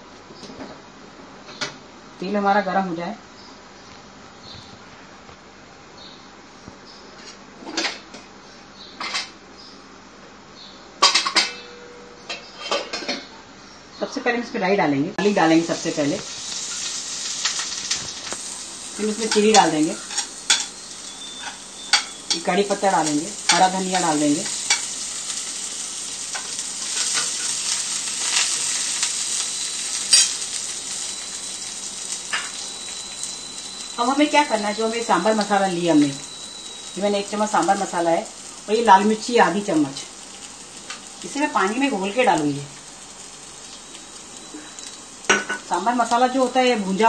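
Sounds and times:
faint steady hiss: 13.6 - 47.0
spices sizzling in hot oil: 15.2 - 47.0
kitchen utensils clanking: 19.0 - 24.9.

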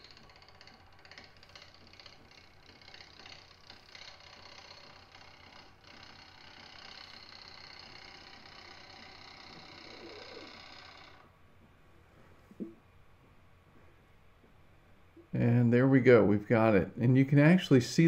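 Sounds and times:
wood lathe running: 0.0 - 11.3
gouge ticking on spinning wood: 0.0 - 11.7.

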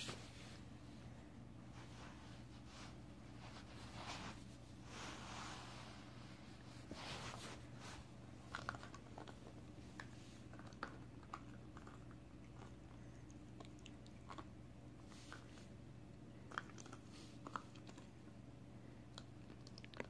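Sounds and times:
soft rustling: 0.0 - 11.0
puppy chewing on a stick: 8.2 - 15.8, 16.4 - 18.3, 19.1 - 20.0.

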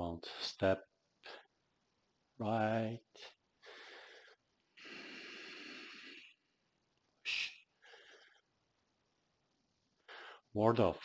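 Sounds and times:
man breathing: 3.2 - 8.8, 10.0 - 10.5.

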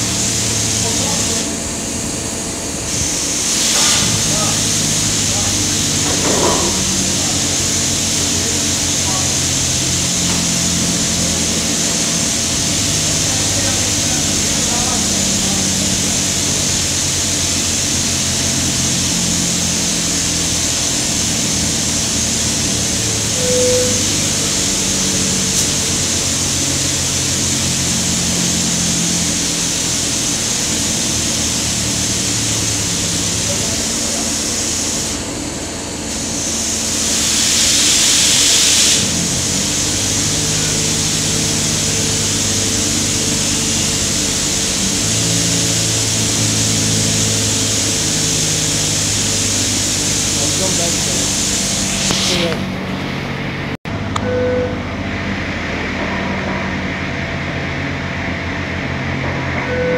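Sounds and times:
loud rushing hiss: 0.0 - 53.8
machinery humming and hissing: 0.0 - 59.9
short tone: 23.3 - 25.2, 53.9 - 56.3, 59.5 - 59.9.

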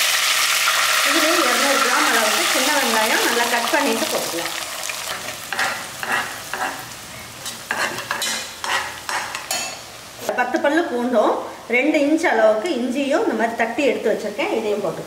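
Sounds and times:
shallots sizzling in oil: 0.0 - 10.4
metal spoon scraping pot: 5.1 - 6.8, 7.7 - 9.8.

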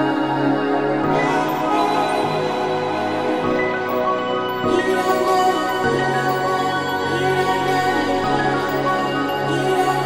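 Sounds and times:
slow meditation music: 0.0 - 10.0.

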